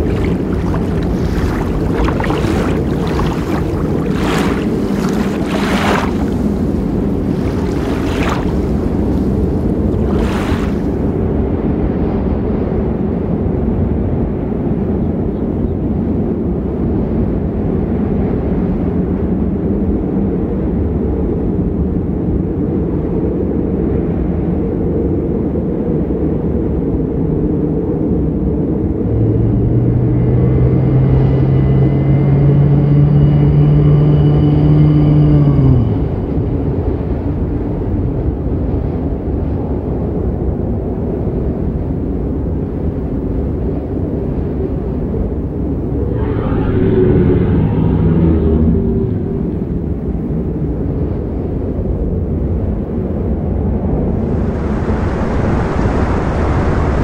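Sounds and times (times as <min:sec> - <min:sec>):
surf rushing: 0:00.0 - 0:11.2, 0:45.7 - 0:50.0, 0:53.8 - 0:57.0
stormy sea rumble: 0:00.0 - 0:57.0
loud low drawn-out tone: 0:45.8 - 0:50.1.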